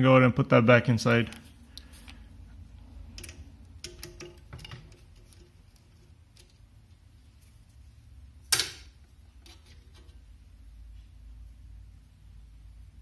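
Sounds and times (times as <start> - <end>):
small metal parts clicking: 3.1 - 5.6.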